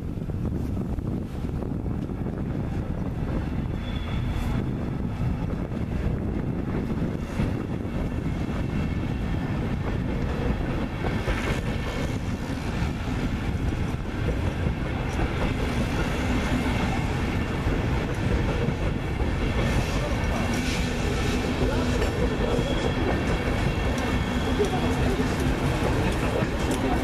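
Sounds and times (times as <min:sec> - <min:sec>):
train wheels rumbling on rails: 0:00.0 - 0:27.0
wheels clacking over rail joints: 0:09.8 - 0:27.0.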